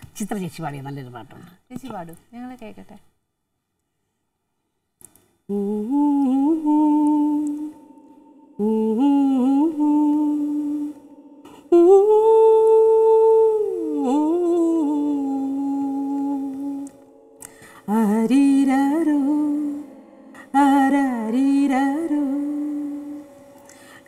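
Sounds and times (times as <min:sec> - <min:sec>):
woman humming a melody: 0:05.5 - 0:08.0, 0:08.6 - 0:17.2.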